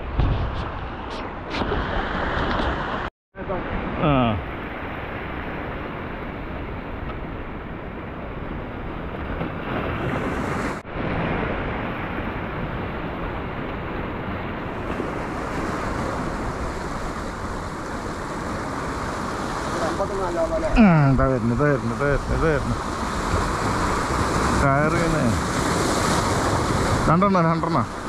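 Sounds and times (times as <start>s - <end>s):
surf breaking over rocks: 9.0s - 28.0s.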